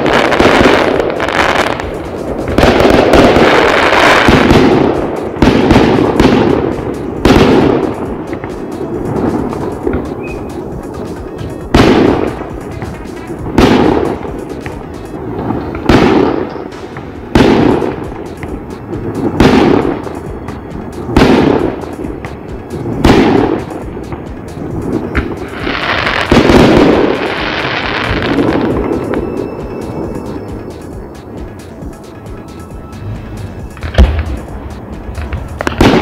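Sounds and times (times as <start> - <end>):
broad swell of noise: 0.0 - 5.4, 26.9 - 35.8
fireworks bursting: 0.0 - 36.0.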